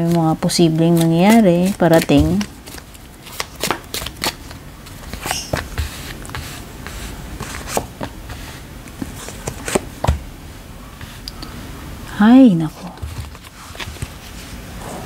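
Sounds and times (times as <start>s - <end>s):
cards tapping and sliding on cloth: 5.0s - 10.2s.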